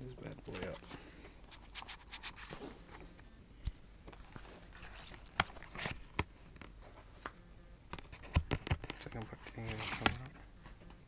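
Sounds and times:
plastic box clicks and knocks: 8.0 - 9.3.

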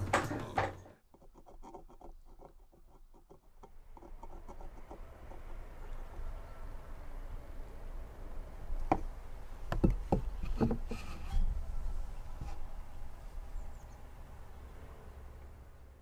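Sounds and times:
metal mug knocking on wood: 9.7 - 10.8.

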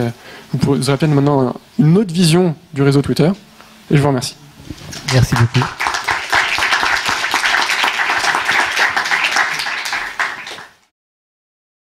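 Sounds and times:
audience applauding: 4.8 - 10.9.

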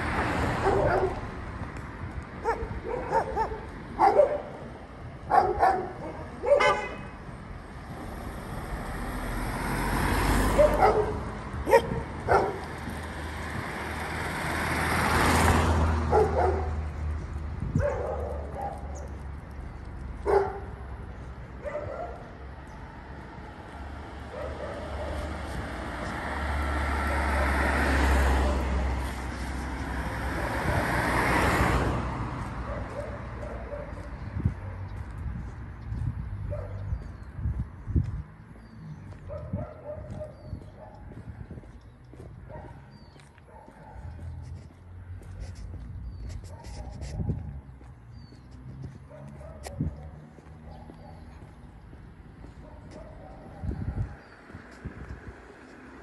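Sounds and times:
cars driving past: 0.0 - 56.0
dogs barking: 0.5 - 1.4, 2.4 - 7.0, 10.4 - 12.9, 15.9 - 17.0, 17.7 - 19.3, 20.2 - 22.6, 24.2 - 25.4, 32.6 - 35.0, 36.4 - 37.1, 39.1 - 41.3, 42.4 - 44.4, 48.9 - 51.6, 52.4 - 54.2.

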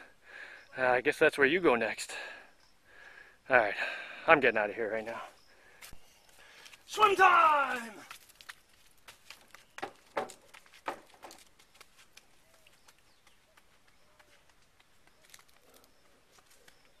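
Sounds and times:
faint chirps: 1.8 - 7.0, 12.3 - 17.0
footsteps on wooden boards: 6.6 - 16.7.

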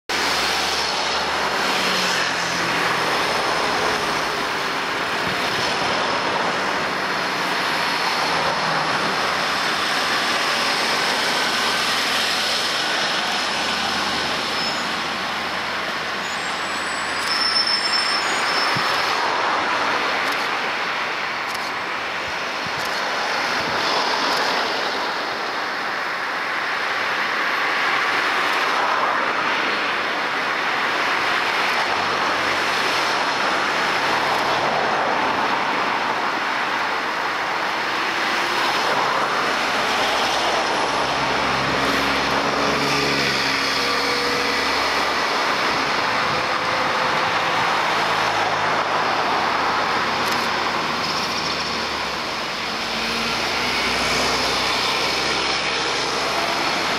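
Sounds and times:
road traffic driving past: 0.1 - 56.9
brief high squeal: 14.4 - 15.1, 16.2 - 19.2.

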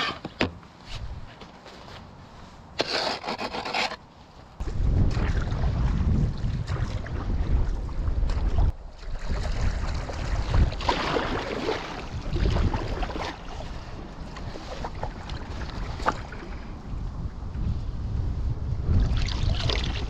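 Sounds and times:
wind buffeting microphone: 4.6 - 20.0
paddle splashing water: 4.7 - 16.7.

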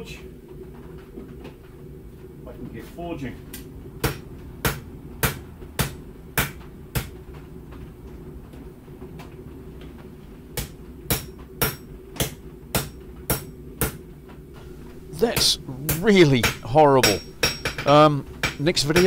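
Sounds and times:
gas forge burner rushing: 14.4 - 19.0
hammer striking steel on anvil: 14.6 - 19.0.

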